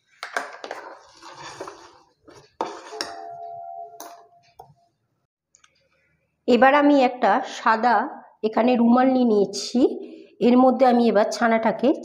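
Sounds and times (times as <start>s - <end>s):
spoon stirring liquid in a pan: 0.3s - 4.2s
metal spoon clinking on pan: 2.6s - 4.4s.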